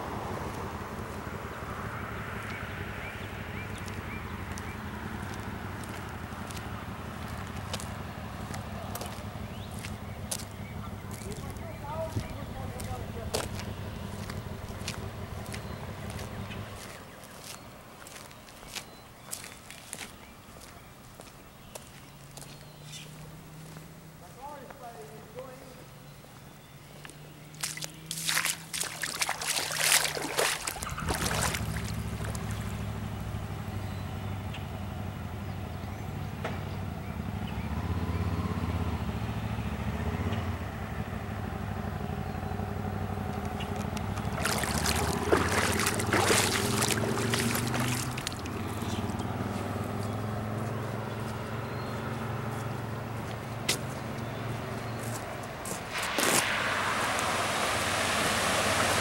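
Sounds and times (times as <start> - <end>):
vehicle engine running: 0.0 - 59.0
rushing water noise: 27.6 - 33.2, 43.4 - 49.6, 55.7 - 59.0.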